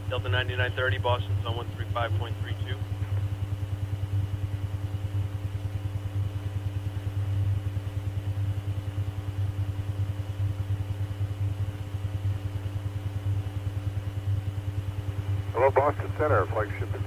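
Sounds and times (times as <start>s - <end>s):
faint high whine: 0.0s - 17.0s
low electrical hum: 0.0s - 17.0s.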